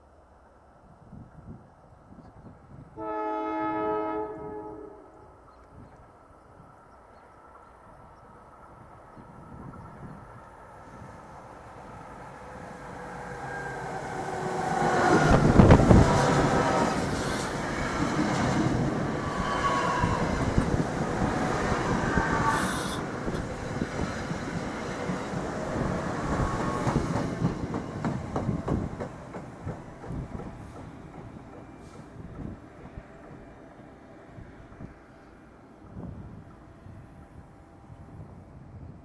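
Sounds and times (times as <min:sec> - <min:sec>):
electric train passing: 0:02.6 - 0:39.0
wheels clattering on rail: 0:23.2 - 0:33.4.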